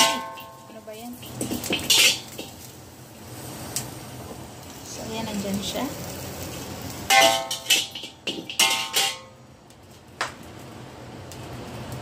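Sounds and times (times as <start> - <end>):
metal spatula scraping a wok: 0.0 - 2.7, 7.0 - 9.3
wok ringing: 0.0 - 3.0, 4.8 - 9.5.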